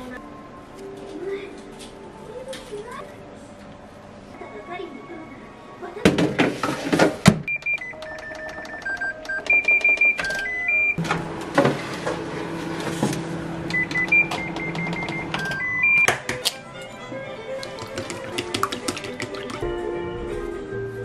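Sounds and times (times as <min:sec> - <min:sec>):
microwave oven humming: 0:07.5 - 0:16.1.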